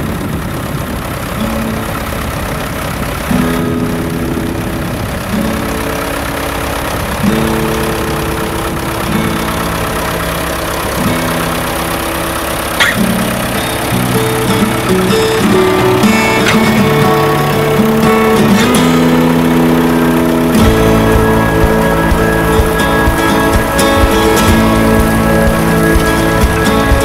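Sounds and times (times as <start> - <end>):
tractor engine rumble: 0.0 - 27.0
slow music of held chords: 13.1 - 27.0.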